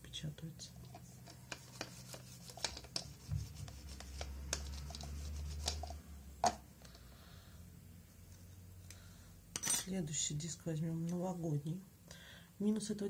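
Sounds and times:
hands rubbing tools: 0:00.9 - 0:06.0.

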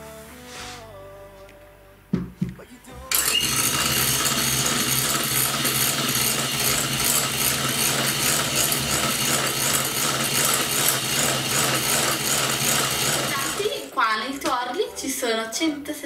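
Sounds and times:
electric mixer whisking in glass bowl: 0:03.1 - 0:14.2.

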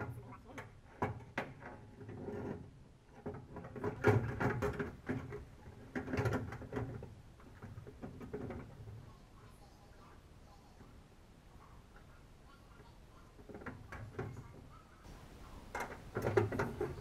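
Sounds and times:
metal hardware clunking and rattling: 0:15.6 - 0:17.0.

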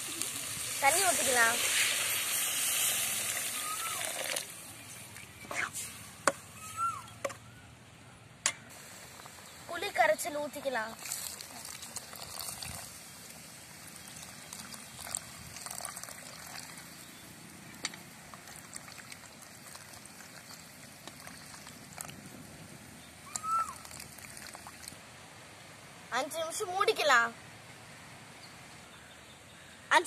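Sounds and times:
water trickling and splashing into liquid: 0:00.0 - 0:06.0, 0:08.7 - 0:25.0.

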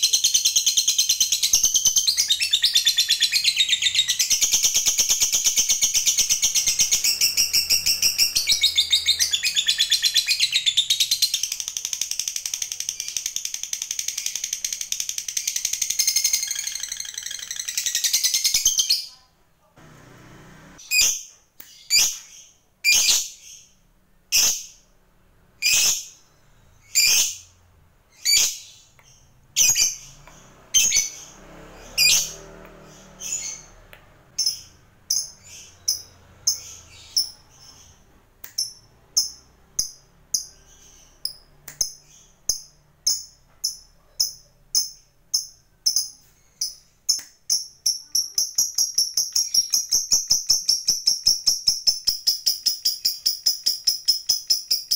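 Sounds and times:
lovebird chirping and trilling: 0:00.0 - 0:19.3, 0:20.8 - 0:25.0, 0:25.6 - 0:54.9.

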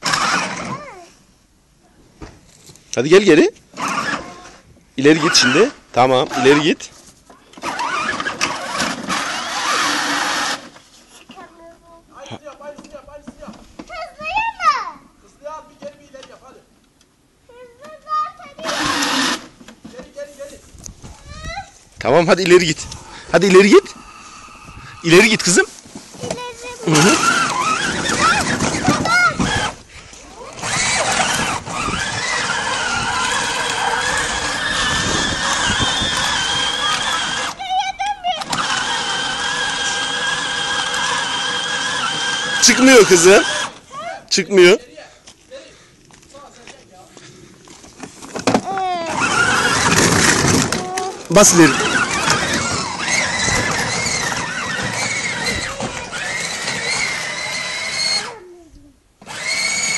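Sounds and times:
electric motors whining: 0:00.0 - 0:00.7, 0:03.8 - 0:04.6, 0:07.6 - 0:10.8, 0:18.6 - 0:19.5, 0:22.5 - 0:25.6, 0:26.9 - 0:37.6, 0:38.4 - 0:43.9, 0:48.7 - 0:58.4, 0:59.2 - 0:59.9
rough rumble of wheels: 0:07.6 - 0:11.5, 0:21.0 - 0:43.9, 0:47.2 - 0:58.4, 0:59.2 - 0:59.9.

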